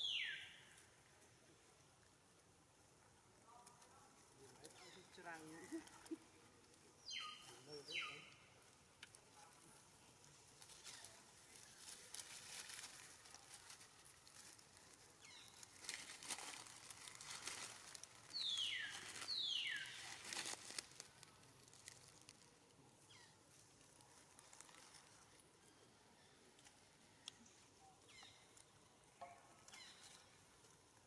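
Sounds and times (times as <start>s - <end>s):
dry leaves rustling: 3.6s - 31.0s.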